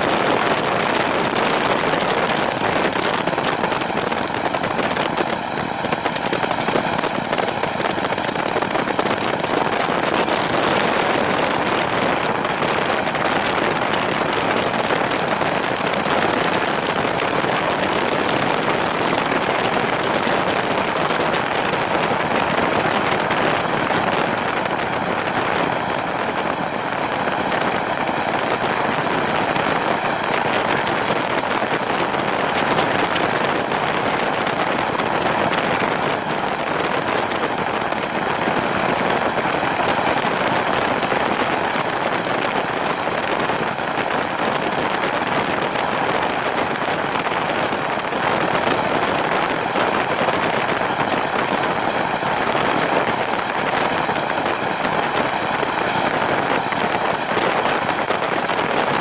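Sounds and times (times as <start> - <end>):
helicopter rotor and engine: 0.0 - 59.0
wind rush on microphone: 0.0 - 59.0.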